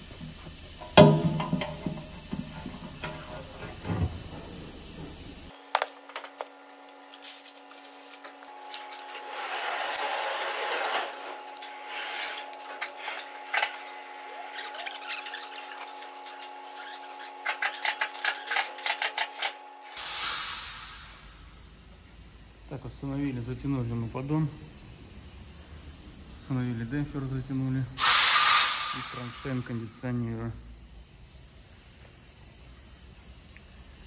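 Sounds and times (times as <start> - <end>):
metal clinks and scraping: 0.6 - 5.1, 5.8 - 19.8
ratchet wrench clicking: 8.1 - 19.6.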